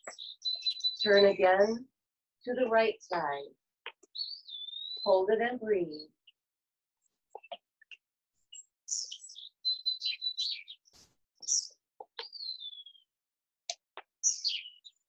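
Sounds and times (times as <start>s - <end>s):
songbirds chirping: 0.0s - 1.8s, 3.9s - 6.1s, 8.4s - 13.1s, 13.7s - 15.0s.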